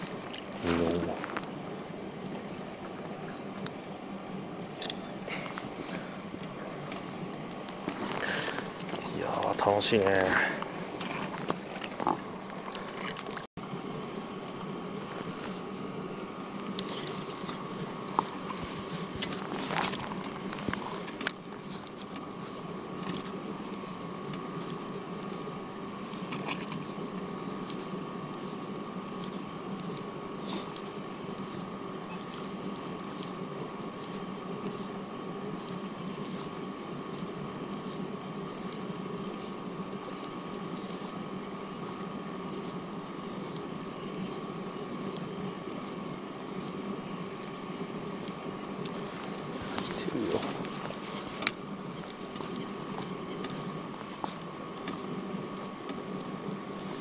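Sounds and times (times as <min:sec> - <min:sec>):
mechanical whirring hum: 0:00.0 - 0:57.0
constant high tone: 0:20.9 - 0:57.0
faint ticks: 0:35.6 - 0:49.1.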